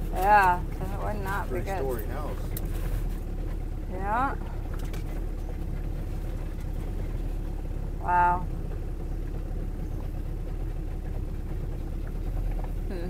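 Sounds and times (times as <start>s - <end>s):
motorboat engine running: 0.0s - 13.0s.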